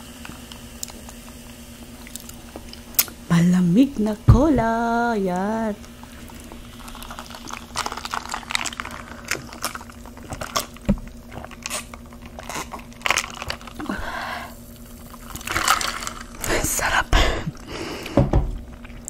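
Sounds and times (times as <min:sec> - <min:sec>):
tortilla chips crunching: 0:06.1 - 0:16.5.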